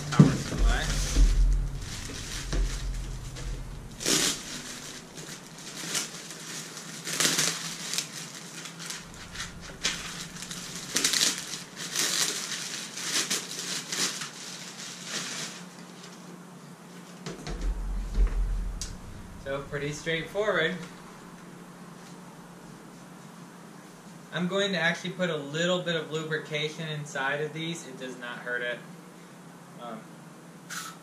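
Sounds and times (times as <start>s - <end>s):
plastic bag crinkling and rustling: 0.0s - 16.4s.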